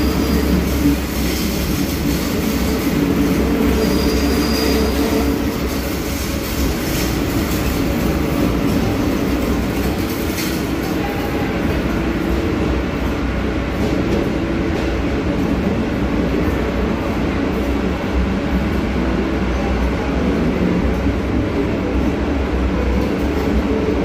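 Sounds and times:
train rumbling on rails: 0.0 - 24.0
high wheel squeal: 3.7 - 5.4.

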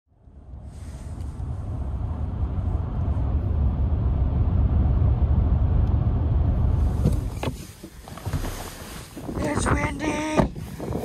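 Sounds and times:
road and engine rumble in cabin: 0.1 - 11.0.

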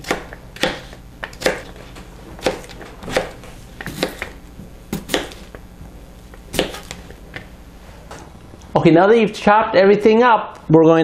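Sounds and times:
knife chopping on cutting board: 0.0 - 1.8, 2.4 - 5.6, 6.5 - 7.1.

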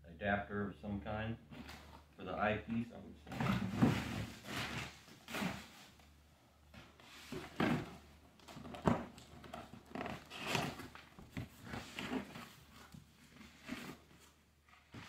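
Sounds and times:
cardboard rustling and scraping: 3.3 - 15.0.

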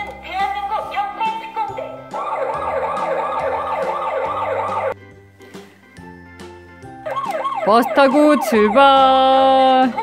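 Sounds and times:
background music: 0.0 - 10.0
toy electronic siren warble: 2.2 - 4.9, 7.1 - 9.1.

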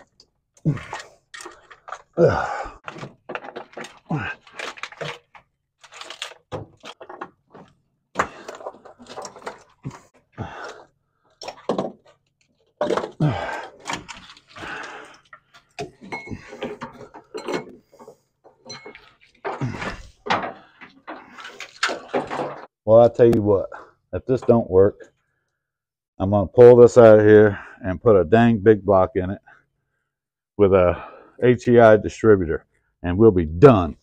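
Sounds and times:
wiring harness clunking and rattling: 0.0 - 22.8.

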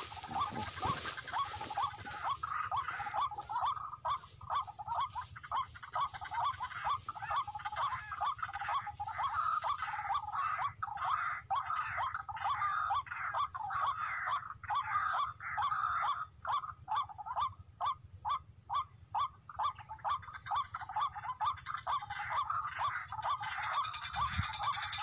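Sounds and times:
bird calling harsh rising notes: 0.0 - 15.7.

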